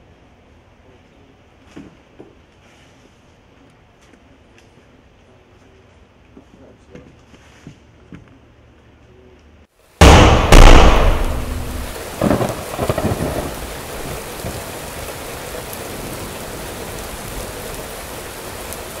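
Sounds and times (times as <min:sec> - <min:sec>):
steady rain: 0:09.7 - 0:19.0
thunder rumbling: 0:10.0 - 0:19.0.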